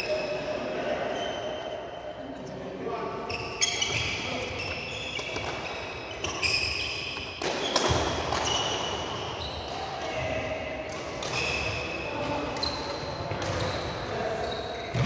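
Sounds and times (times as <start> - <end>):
sports shoes squeaking on court: 3.2 - 10.3, 11.2 - 15.0
racket hitting shuttlecock: 5.2 - 13.8.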